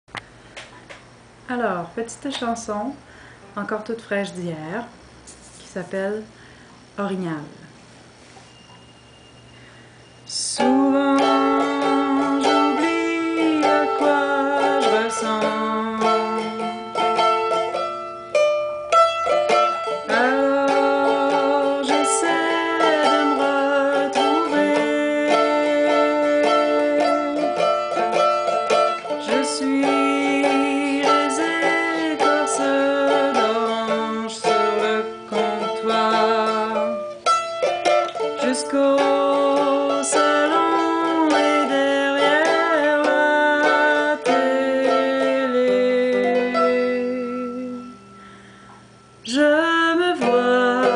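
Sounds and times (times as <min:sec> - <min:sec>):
woman singing: 0:10.3 - 0:17.3, 0:19.5 - 0:37.2, 0:37.9 - 0:48.1, 0:49.2 - 0:50.9
strummed mandolin: 0:10.3 - 0:50.9.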